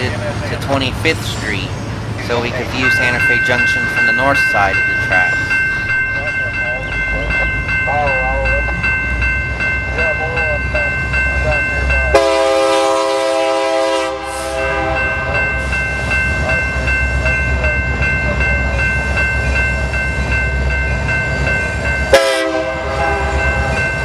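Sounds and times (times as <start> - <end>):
low rumble of diesel locomotives: 0.0 - 24.0
locomotive air horn blast: 12.1 - 15.3, 22.1 - 23.7.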